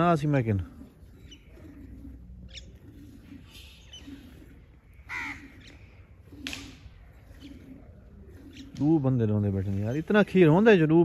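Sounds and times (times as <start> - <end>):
crows cawing: 5.0 - 5.9.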